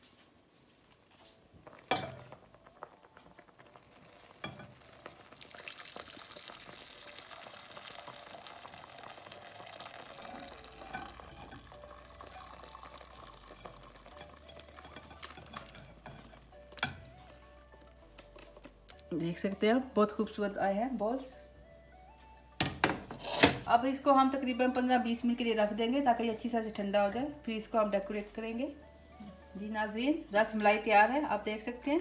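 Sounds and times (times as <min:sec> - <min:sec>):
milk pouring into a bowl: 0:02.9 - 0:15.7.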